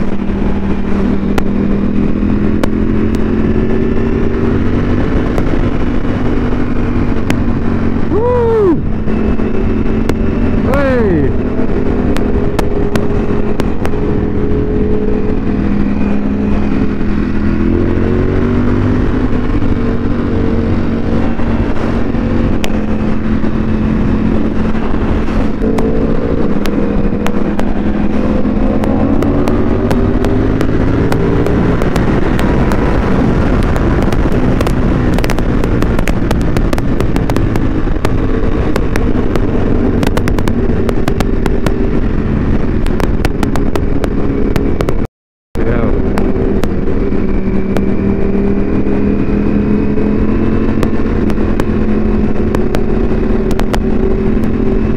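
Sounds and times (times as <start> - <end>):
exhaust popping: 0.0 - 54.9
motorcycle engine revving: 0.0 - 54.9
wind noise: 0.0 - 54.9.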